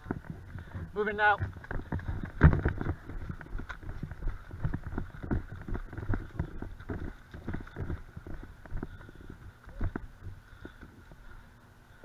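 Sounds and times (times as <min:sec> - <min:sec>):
running footsteps on forest floor: 0:00.0 - 0:12.0.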